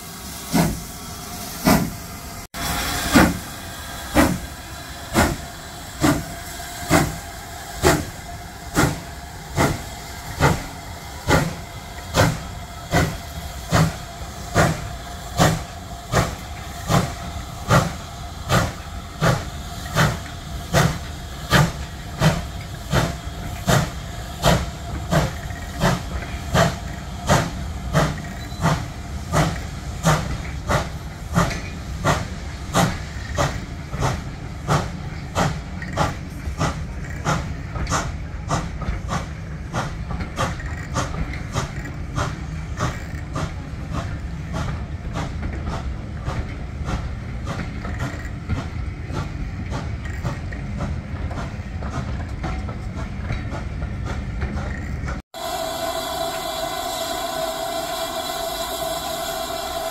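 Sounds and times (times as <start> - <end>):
steam hissing from drain cocks: 0.0 - 45.8, 55.4 - 59.9
steam locomotive exhaust chuffing: 0.0 - 59.9.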